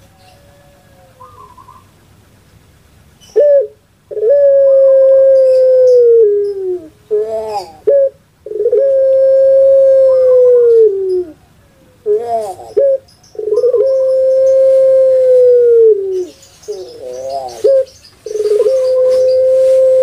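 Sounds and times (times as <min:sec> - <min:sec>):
dove cooing: 0:00.0 - 0:02.0, 0:03.2 - 0:20.0.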